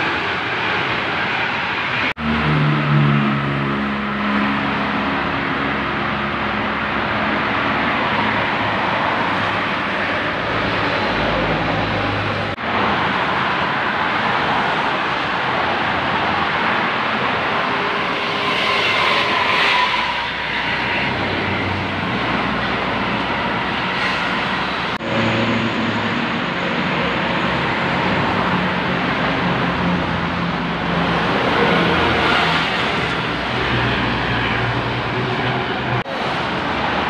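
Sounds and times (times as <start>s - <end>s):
motorway traffic rushing past: 0.0s - 37.0s
heavy diesel engine hum: 15.0s - 37.0s.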